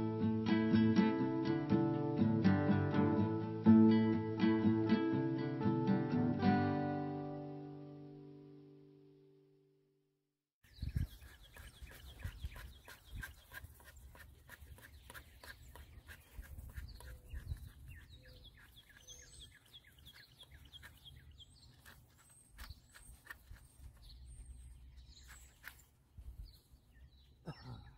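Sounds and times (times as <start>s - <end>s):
strummed acoustic guitar: 0.0s - 8.7s
small birds chirping: 10.6s - 27.9s
wind rumble on microphone: 10.7s - 13.4s
whistled bird calls: 15.0s - 21.6s.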